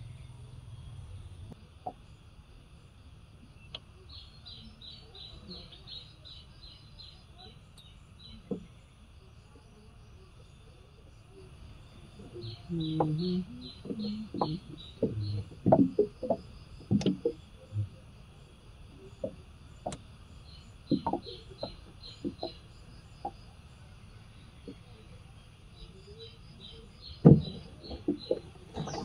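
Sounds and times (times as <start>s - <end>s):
high insect drone: 0.0s - 29.0s
bird chirping in rapid runs: 12.1s - 17.6s, 19.7s - 23.5s
low-pitched sounds: 12.2s - 18.1s
sharp knocks: 27.2s - 29.0s.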